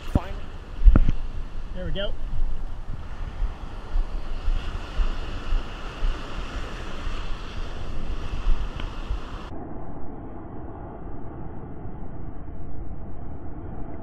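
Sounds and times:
surf washing and hissing: 0:00.0 - 0:09.5
wind buffeting microphone: 0:00.0 - 0:14.0.

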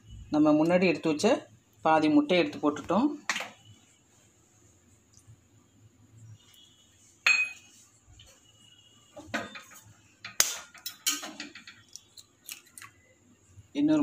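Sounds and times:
eggshell cracking: 0:11.7 - 0:13.0.

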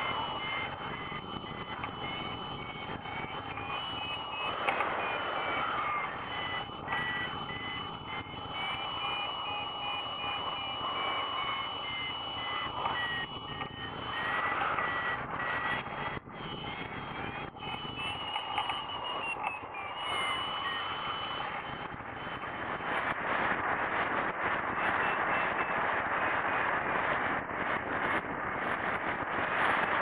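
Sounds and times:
steady high tone: 0:00.0 - 0:22.8
variometer beeping: 0:00.0 - 0:22.9
wind rushing past microphone: 0:00.0 - 0:30.0.

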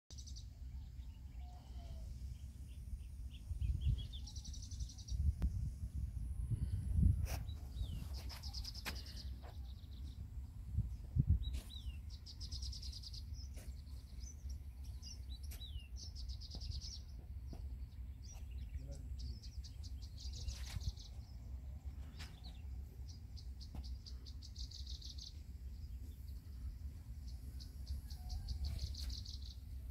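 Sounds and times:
wind on microphone: 0:03.3 - 0:08.8, 0:10.6 - 0:11.9.

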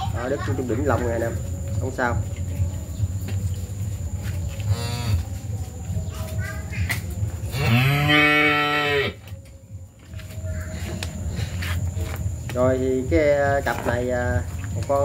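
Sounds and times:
cow mooing: 0:07.5 - 0:09.2.

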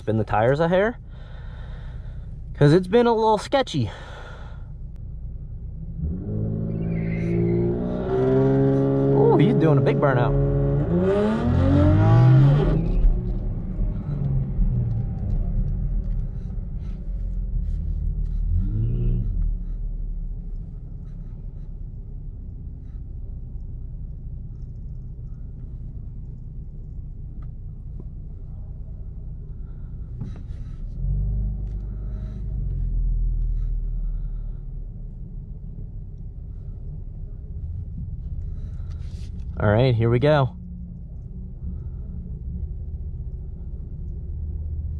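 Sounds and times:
car engine idling: 0:00.0 - 0:06.0, 0:13.0 - 0:44.9
engine revving: 0:05.8 - 0:17.0, 0:17.7 - 0:19.8, 0:30.2 - 0:34.6.

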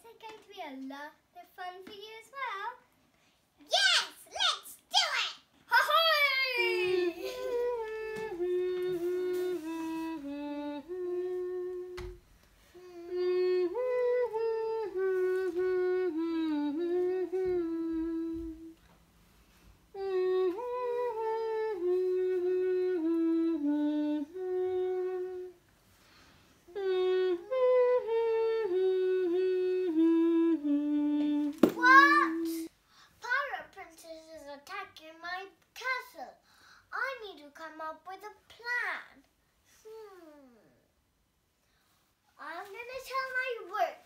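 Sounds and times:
girl humming: 0:06.6 - 0:18.8, 0:19.9 - 0:25.6, 0:26.7 - 0:32.7, 0:39.8 - 0:40.9.

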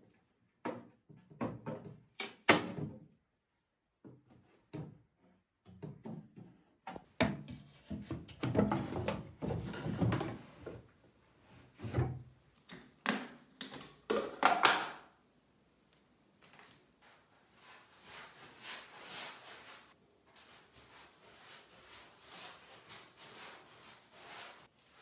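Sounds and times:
wooden parts knocking and scraping: 0:05.7 - 0:10.9.

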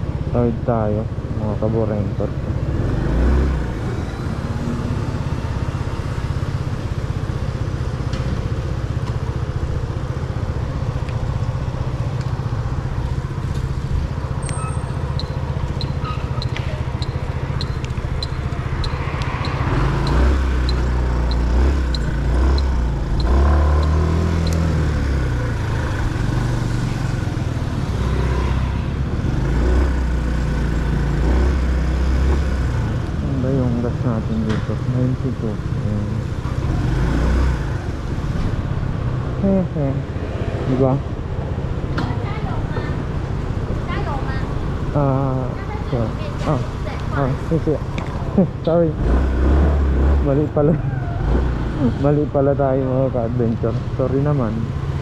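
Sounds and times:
road noise: 0:00.0 - 0:55.0
motorcycle engine running: 0:04.4 - 0:34.0.

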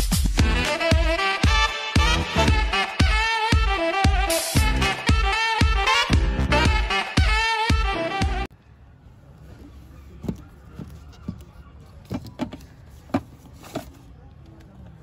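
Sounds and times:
music: 0:00.0 - 0:08.5
plastic cases clicking: 0:10.2 - 0:14.0.

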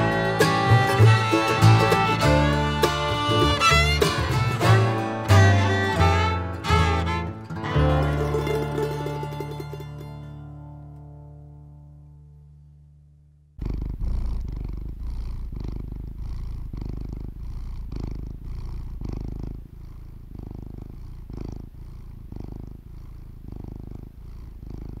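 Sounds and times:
cat purring: 0:00.0 - 0:06.2, 0:13.4 - 0:25.0.

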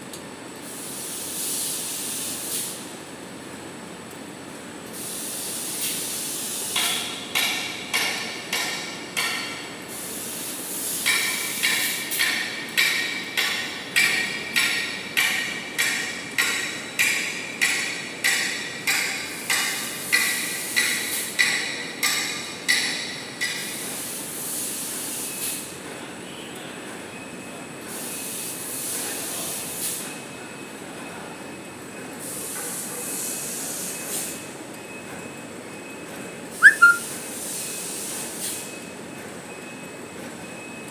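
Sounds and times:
air hiss: 0:00.7 - 0:02.8, 0:05.0 - 0:06.8, 0:09.9 - 0:12.2.

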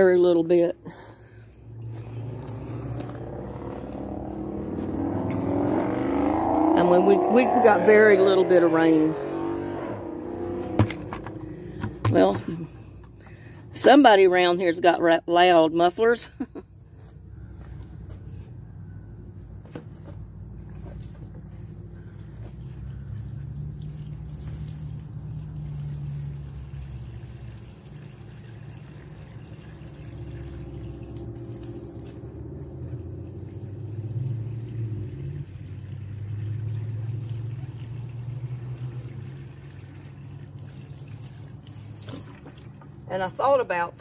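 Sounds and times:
vehicle exhaust rumble: 0:00.0 - 0:44.0
water pouring from watering can: 0:20.7 - 0:43.1.

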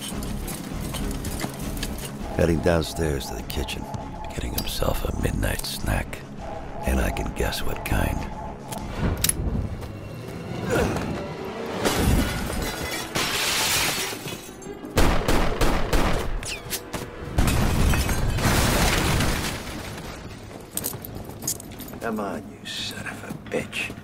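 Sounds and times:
dramatic orchestral score: 0:00.0 - 0:13.2.

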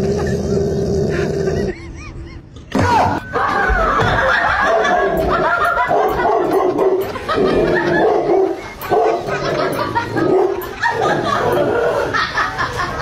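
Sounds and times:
dog barking: 0:05.8 - 0:07.1, 0:08.0 - 0:09.4.

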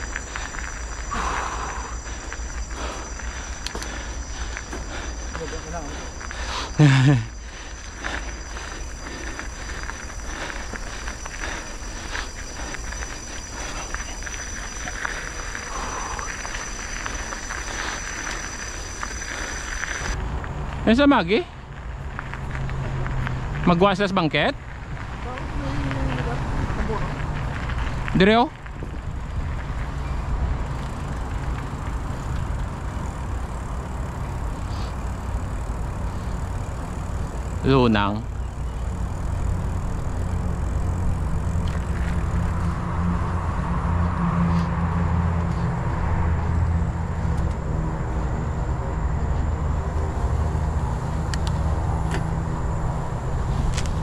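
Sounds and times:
bike clicks and rattles: 0:00.0 - 0:20.8, 0:21.7 - 0:43.0, 0:47.1 - 0:47.8, 0:50.2 - 0:54.0
bike tyres on dirt: 0:00.0 - 0:54.0
wind rumble on microphone: 0:24.7 - 0:30.9.

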